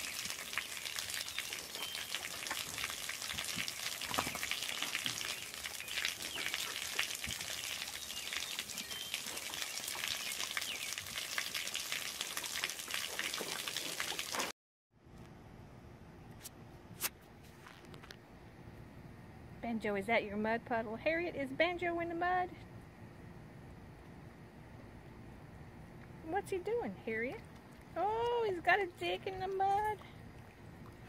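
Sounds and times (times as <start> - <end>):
water spray splashing on mud: 0.0 - 14.5.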